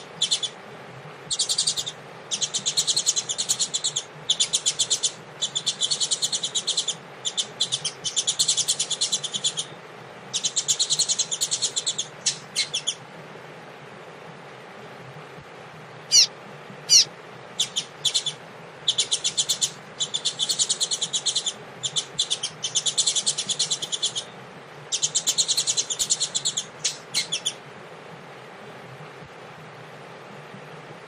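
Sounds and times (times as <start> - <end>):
bird singing whistles and trills: 0.1 - 0.6, 1.3 - 9.7, 10.3 - 13.0, 16.1 - 16.3, 16.9 - 24.3, 24.9 - 27.6.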